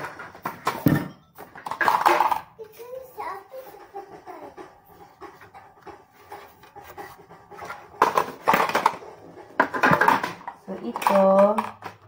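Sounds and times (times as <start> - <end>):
plastic clattering and clicking: 0.0 - 2.5, 7.6 - 12.0
plastic attachments rubbing and ticking: 1.6 - 12.0.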